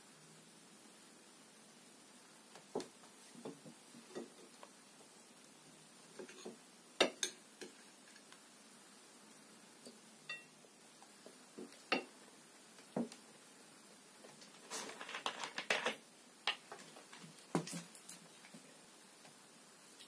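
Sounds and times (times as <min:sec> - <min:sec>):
metal spoon clinking on glass plate: 0:06.3 - 0:07.8, 0:10.3 - 0:10.5
plastic bottle crackling: 0:14.3 - 0:18.2.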